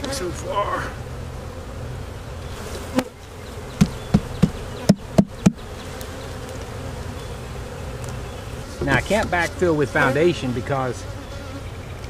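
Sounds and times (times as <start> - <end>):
honeybees buzzing: 0.0 - 12.0
sharp knocks: 3.8 - 5.6.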